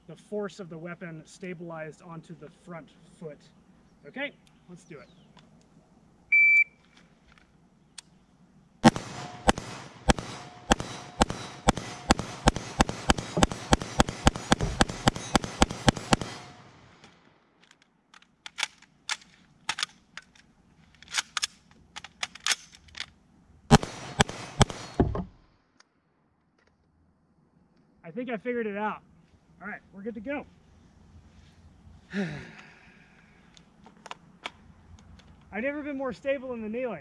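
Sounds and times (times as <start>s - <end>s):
rifle handling clicks and knocks: 6.8s - 8.2s, 10.7s - 23.2s, 24.6s - 27.0s, 33.4s - 35.5s
rifle shots rapid fire: 8.8s - 17.0s, 23.7s - 25.0s.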